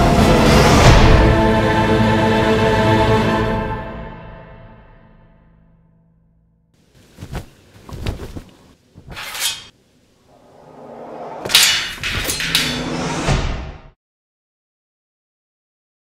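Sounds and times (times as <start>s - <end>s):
rising rush: 10.3s - 11.5s
sharp fight hits: 11.4s - 13.7s.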